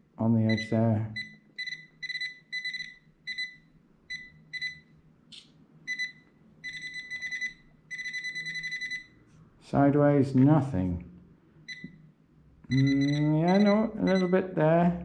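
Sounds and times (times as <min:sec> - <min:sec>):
metal detector beeping: 0:00.5 - 0:04.8, 0:12.7 - 0:14.4.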